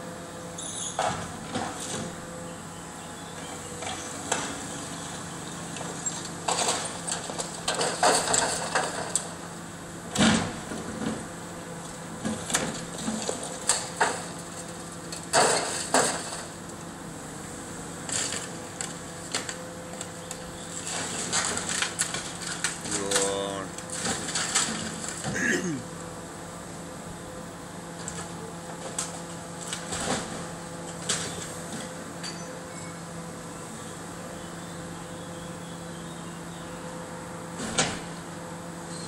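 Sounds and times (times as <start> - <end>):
debris crashing and cracking: 6.5 - 9.3, 12.4 - 16.6, 20.8 - 25.4.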